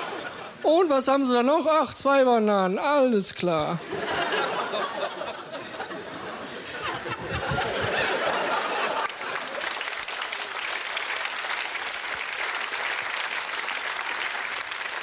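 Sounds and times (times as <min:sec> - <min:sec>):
audience applauding: 0:07.4 - 0:15.0.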